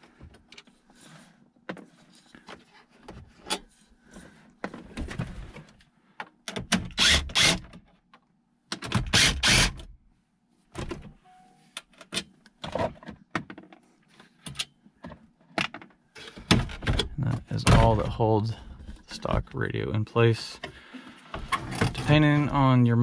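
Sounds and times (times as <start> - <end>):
cordless drill running: 7.0 - 7.6, 9.2 - 9.7.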